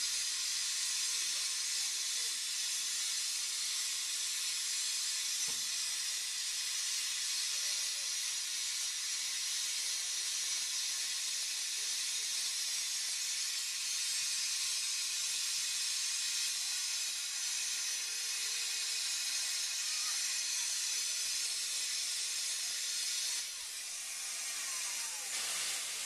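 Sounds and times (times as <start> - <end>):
steam hissing from locomotive: 0.0 - 26.0.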